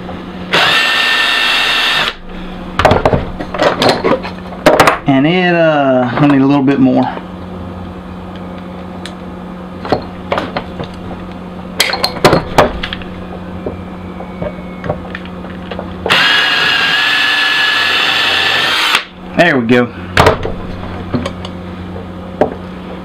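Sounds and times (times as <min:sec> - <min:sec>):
power drill whining: 0:00.5 - 0:02.2, 0:16.1 - 0:19.1.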